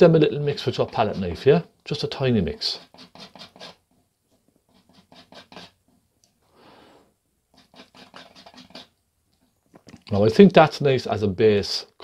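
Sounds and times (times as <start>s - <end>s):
palette knife scraping paint: 0.4s - 6.0s, 7.5s - 9.0s.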